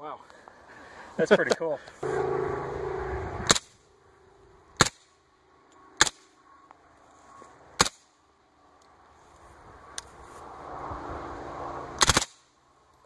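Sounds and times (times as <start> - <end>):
steady loud noise: 2.0 - 6.4.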